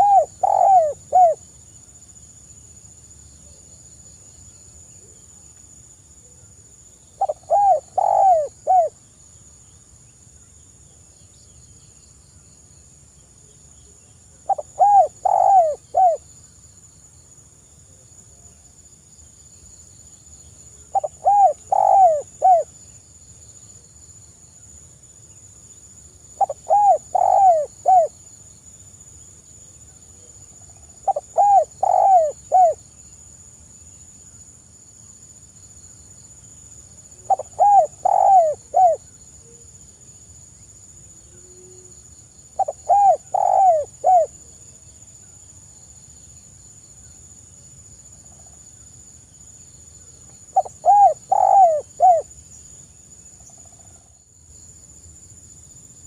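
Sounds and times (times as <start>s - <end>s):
dove cooing: 0.0s - 1.4s, 7.2s - 8.9s, 14.5s - 16.2s, 20.9s - 22.7s, 26.4s - 28.1s, 31.0s - 32.8s, 37.2s - 39.0s, 42.6s - 44.4s, 50.6s - 52.3s.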